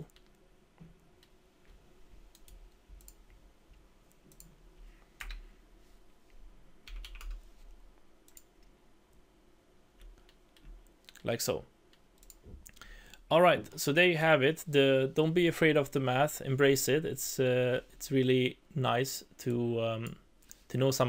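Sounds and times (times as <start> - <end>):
computer mouse clicks: 2.3 - 3.2, 4.1 - 4.6, 8.2 - 8.7, 11.9 - 12.8.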